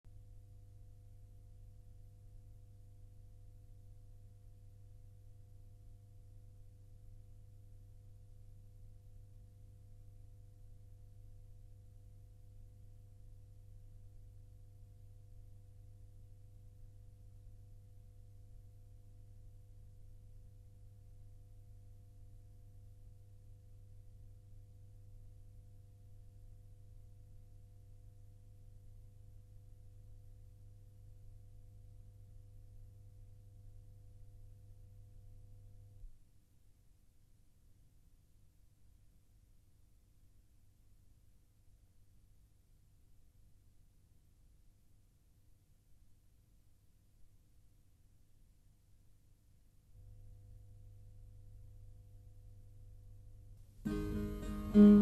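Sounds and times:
faint steady tones: 53.9 - 55.0.

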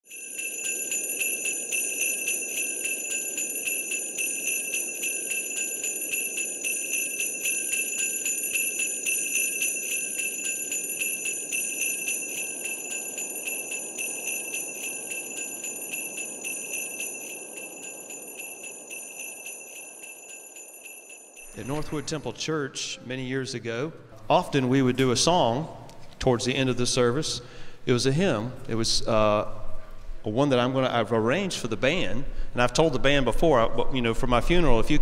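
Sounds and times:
sleigh bells shaking: 0.0 - 22.0.

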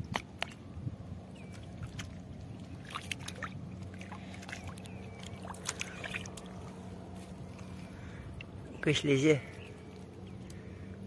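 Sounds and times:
wet clicks on mud: 0.0 - 0.6, 4.4 - 6.6
low engine-like hum: 0.0 - 11.0
squelching footsteps in mud: 1.4 - 8.6.

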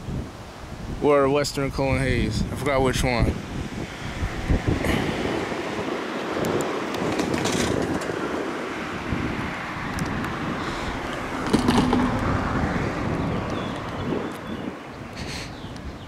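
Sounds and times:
wind on microphone: 0.0 - 16.0
street traffic: 3.0 - 16.0
car driving past close by: 3.8 - 14.4.

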